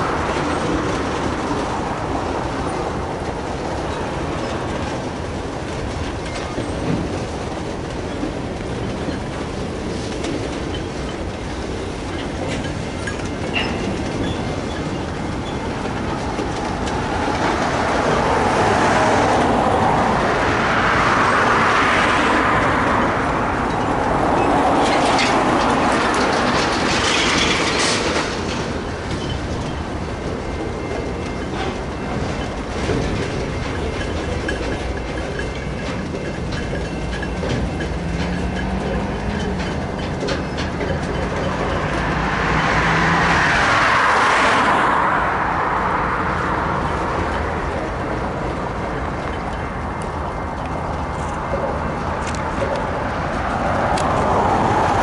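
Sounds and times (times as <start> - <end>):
freight train wheels on rails: 0.0 - 55.0
road vehicle passing: 15.7 - 36.0, 36.9 - 55.0.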